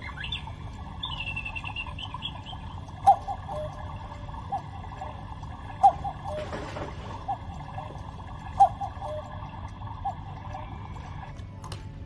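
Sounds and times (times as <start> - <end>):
high chirps: 0.0 - 5.2
electronic cuckoo call: 0.0 - 11.3.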